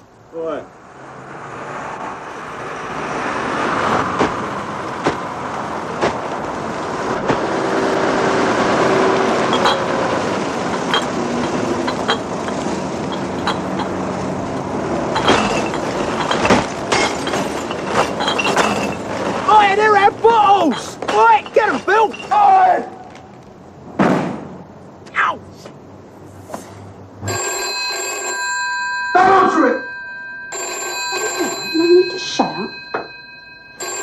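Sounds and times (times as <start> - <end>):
refuse lorry engine running: 0.7 - 25.0
clanks and knocks: 9.4 - 19.6, 20.6 - 22.4.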